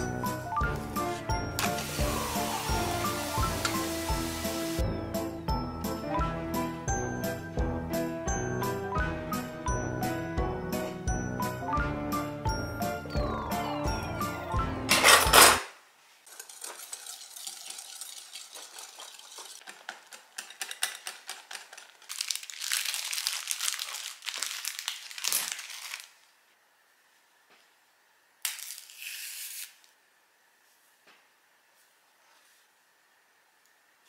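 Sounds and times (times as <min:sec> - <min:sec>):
crinkling rustle: 0:21.5 - 0:26.4.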